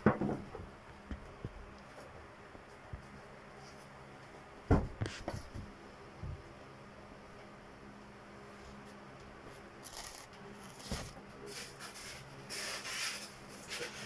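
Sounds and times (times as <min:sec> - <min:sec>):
plastic wrapping crinkling: 0:09.8 - 0:14.0.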